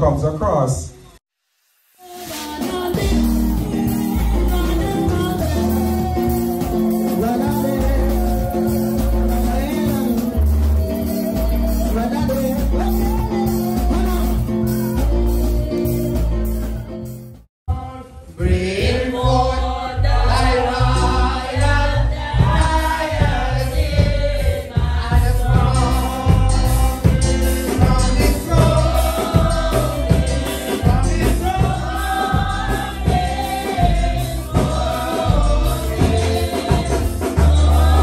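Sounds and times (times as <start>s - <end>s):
group singing gospel music: 2.0s - 38.0s
pulsing bass beat: 3.0s - 17.0s, 22.4s - 38.0s.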